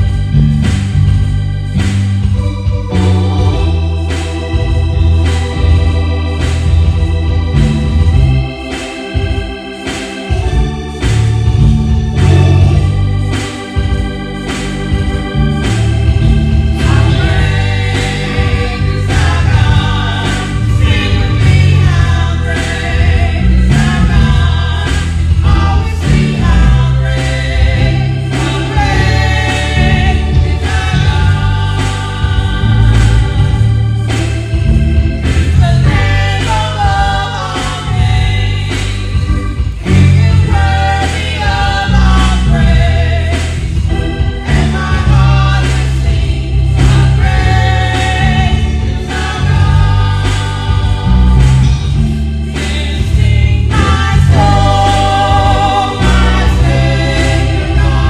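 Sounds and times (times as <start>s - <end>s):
organ chords: 0.0s - 58.0s
steady beat: 0.0s - 58.0s
singing: 52.6s - 58.0s.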